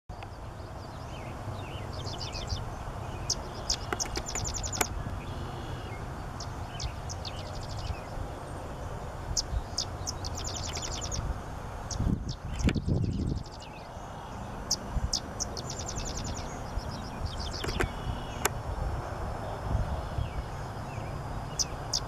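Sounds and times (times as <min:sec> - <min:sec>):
wren singing chattering song: 0:00.1 - 0:18.5, 0:20.1 - 0:22.0.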